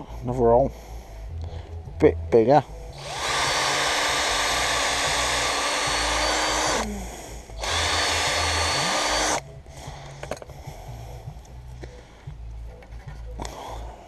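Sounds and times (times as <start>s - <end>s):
electric drill boring: 3.0s - 6.9s, 7.6s - 9.4s.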